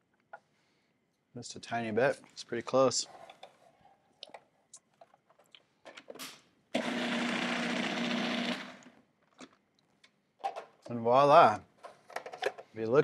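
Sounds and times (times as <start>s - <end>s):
food processor motor: 6.8s - 9.0s.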